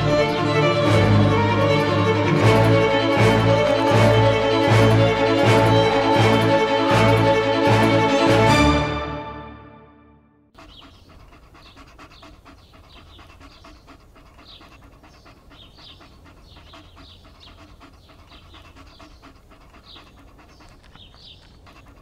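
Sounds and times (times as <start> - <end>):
dog panting: 0.0 - 8.8, 10.6 - 22.0.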